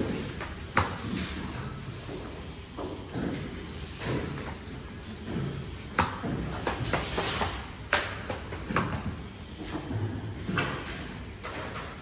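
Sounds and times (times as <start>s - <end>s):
sharp clicks and knocks: 2.8s - 9.2s.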